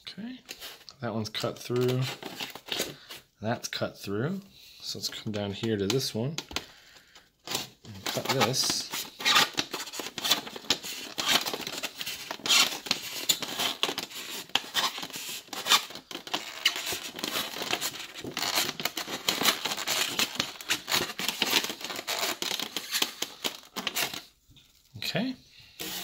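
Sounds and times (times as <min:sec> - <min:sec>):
knife cutting styrofoam: 0:07.6 - 0:23.2.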